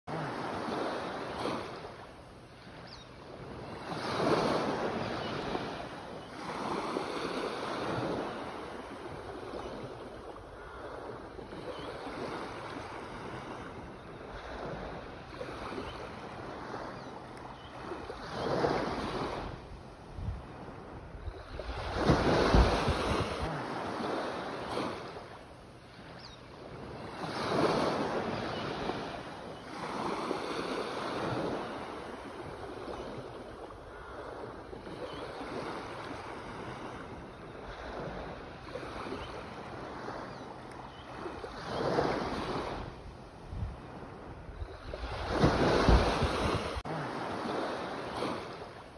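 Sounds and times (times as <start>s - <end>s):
waves breaking: 0.1s - 48.9s.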